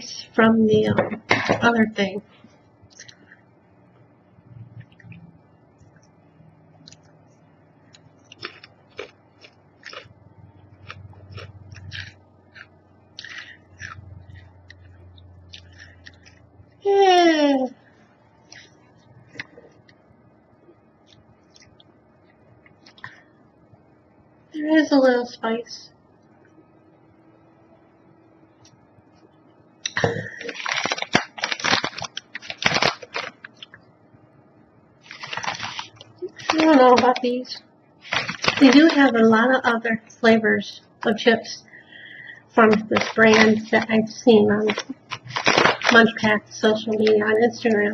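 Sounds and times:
person chewing crunchy chips: 7.9 - 16.5, 29.8 - 33.8, 35.0 - 37.2, 38.0 - 39.2, 42.6 - 44.0, 44.6 - 46.2
plastic bag crinkling: 30.0 - 33.8, 35.0 - 39.3, 42.6 - 47.9.

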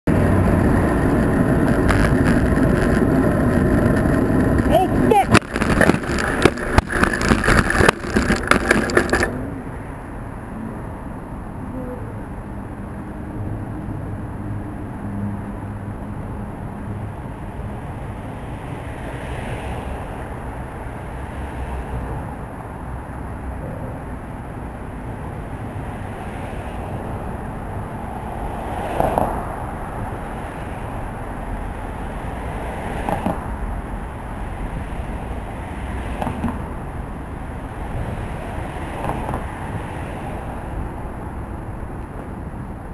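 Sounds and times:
low rumble of street traffic: 0.0 - 42.9
bicycle clattering across road: 0.1 - 9.6, 28.8 - 37.0.

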